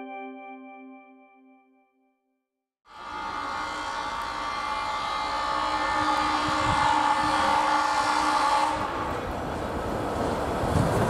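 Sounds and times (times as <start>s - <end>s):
electric locomotive whining: 2.9s - 11.0s.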